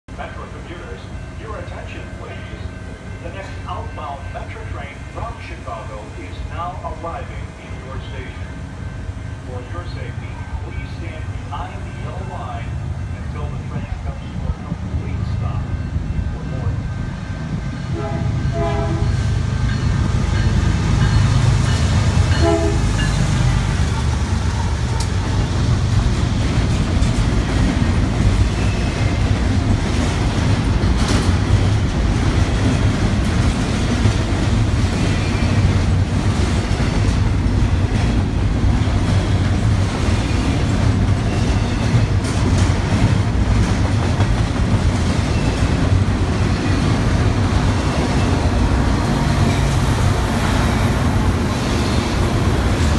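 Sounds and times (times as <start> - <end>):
train rumbling and clattering past: 0.1 - 52.9
locomotive horn blasts: 17.9 - 19.3, 22.3 - 23.1.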